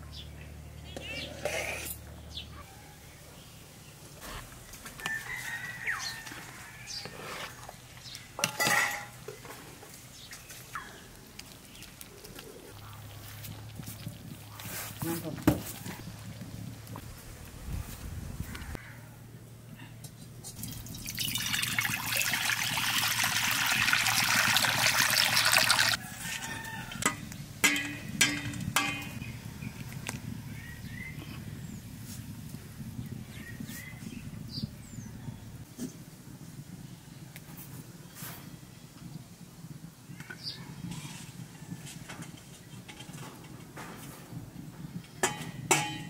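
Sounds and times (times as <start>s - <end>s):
metal ladle scraping pot: 0.9s - 2.1s, 6.2s - 9.6s
water pouring into metal pan: 20.6s - 26.0s.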